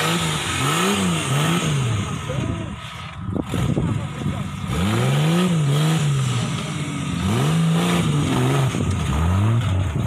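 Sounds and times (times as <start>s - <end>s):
buggy engine revving: 0.0s - 10.0s.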